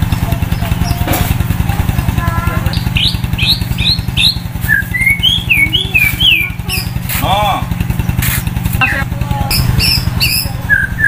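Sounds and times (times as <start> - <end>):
engine running: 0.0 - 11.0
bird singing whistles: 2.8 - 6.9, 9.5 - 11.0.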